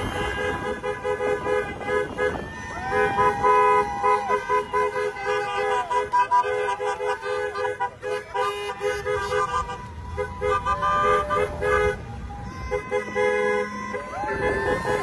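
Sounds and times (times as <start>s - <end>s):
vehicle horns honking: 0.0s - 15.0s.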